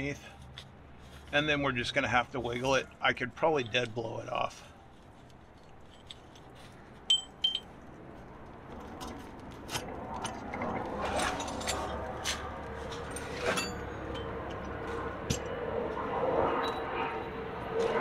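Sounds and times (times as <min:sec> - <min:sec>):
metal tools clinking: 0:05.6 - 0:07.7, 0:11.1 - 0:12.0, 0:13.0 - 0:14.3.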